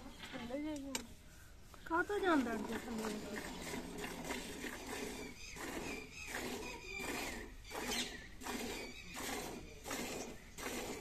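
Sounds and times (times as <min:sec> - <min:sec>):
milk squirting into pail: 0:02.4 - 0:11.0.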